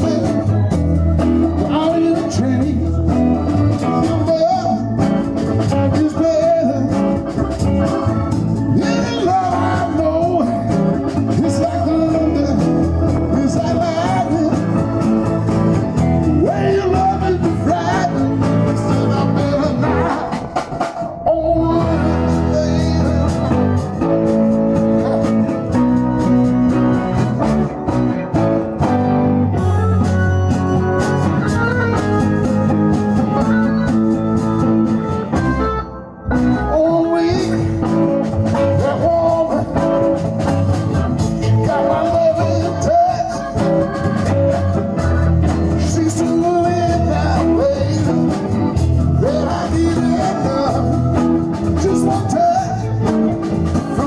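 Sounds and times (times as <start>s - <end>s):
live blues-rock band playing: 0.0s - 54.0s.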